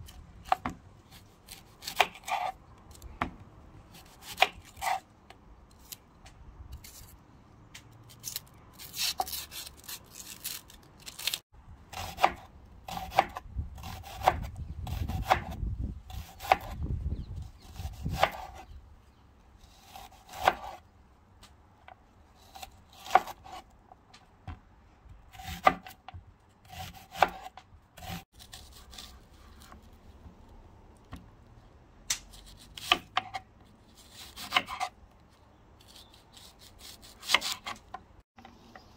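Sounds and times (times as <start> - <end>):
soft knife scraping: 1.1 - 2.6, 4.0 - 5.1, 32.3 - 35.0.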